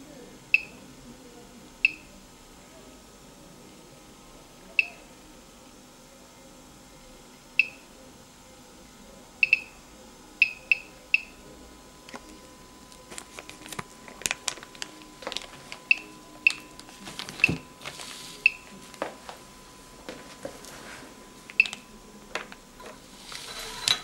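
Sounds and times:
geiger counter beeps: 9.4 - 9.8
plastic bag crinkling: 13.0 - 18.4.

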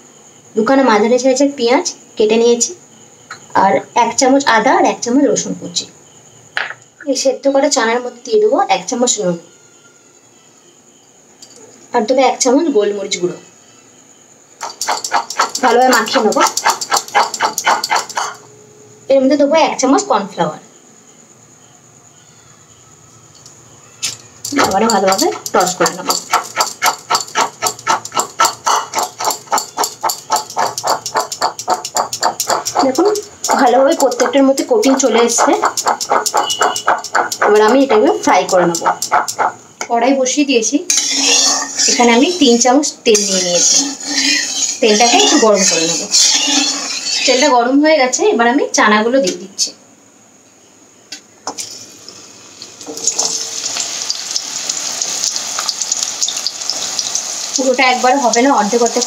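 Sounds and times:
chickpeas rattling in metal bowl: 14.6 - 18.3, 24.4 - 39.5, 43.1 - 47.5, 52.8 - 59.0.

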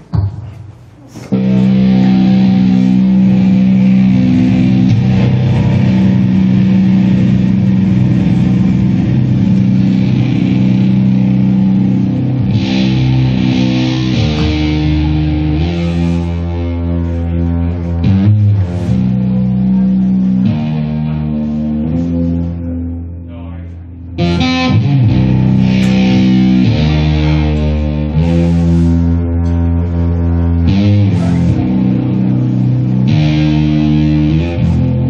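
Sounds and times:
electric guitar droning notes: 1.2 - 35.0.

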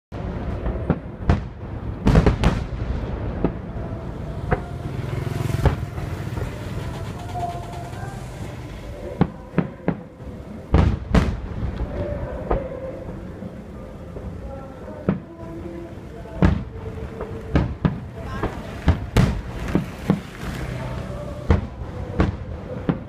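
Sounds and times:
steady background noise: 0.1 - 23.0
firework shells booming: 0.2 - 3.7, 10.7 - 12.7, 16.4 - 20.4.

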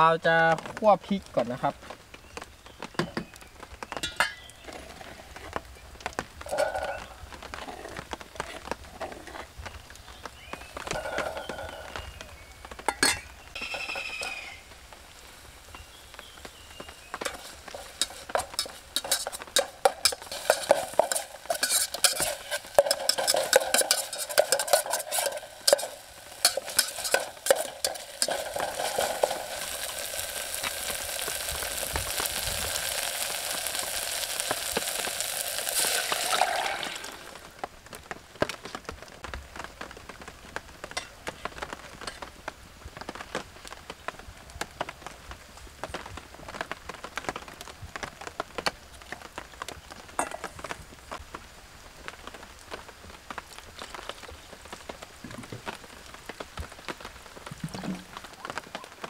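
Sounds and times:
steady sizzle: 0.0 - 59.0
utensil scraping a pan: 17.2 - 30.8.

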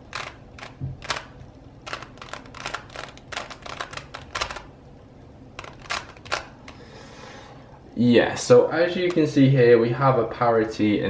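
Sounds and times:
plastic puzzle layers clacking: 0.0 - 4.7, 5.6 - 6.8.

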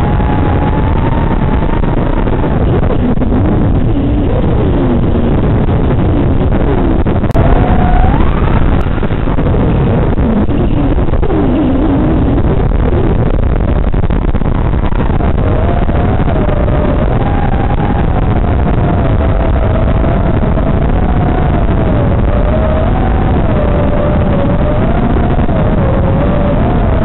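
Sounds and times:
wavering motor whine: 0.0 - 27.0
drone motors buzzing: 6.0 - 27.0.

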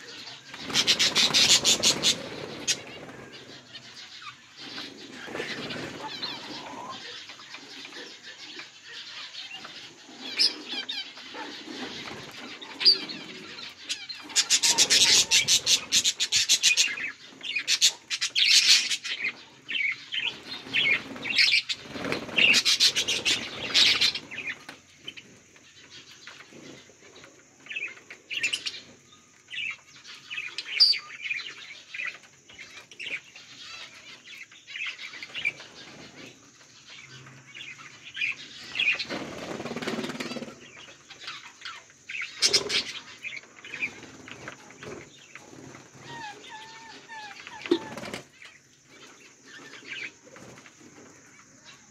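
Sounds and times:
budgerigars chirping: 0.0 - 24.6.

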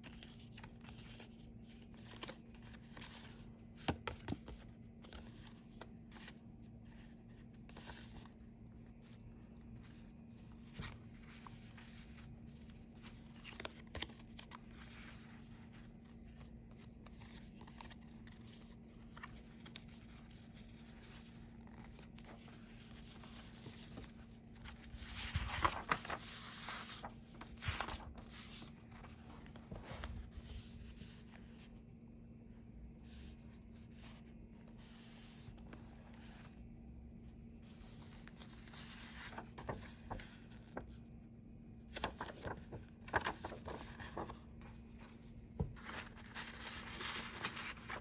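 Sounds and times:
paper rustling and crinkling: 0.0 - 31.7, 37.6 - 41.1, 41.9 - 48.0
faint steady hum: 0.0 - 48.0.

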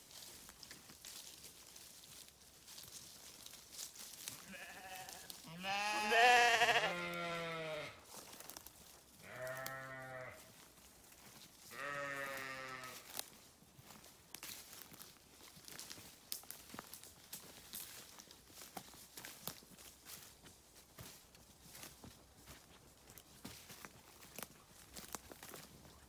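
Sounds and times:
sheep bleating: 4.4 - 8.0, 9.2 - 10.5, 11.7 - 13.0.

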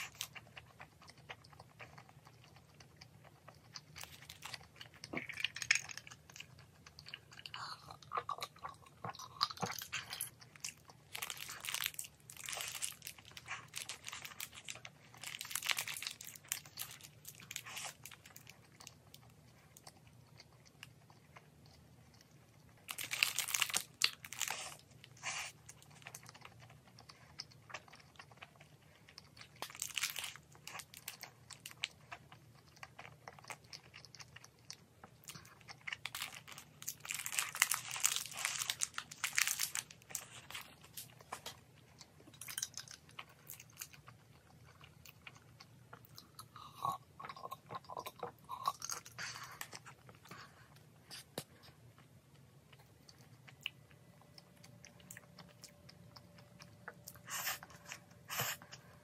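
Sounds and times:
crunching and chewing sandwich: 0.0 - 59.0.

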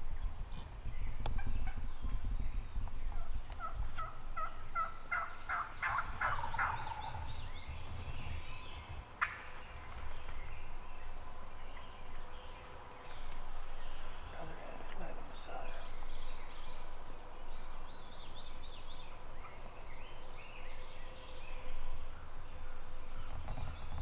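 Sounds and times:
wild turkey gobbling: 3.1 - 7.3, 9.2 - 10.1.

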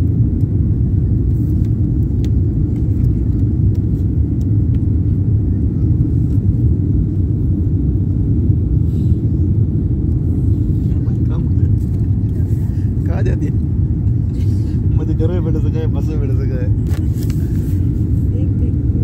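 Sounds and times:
airliner cabin rumble: 0.0 - 19.0.

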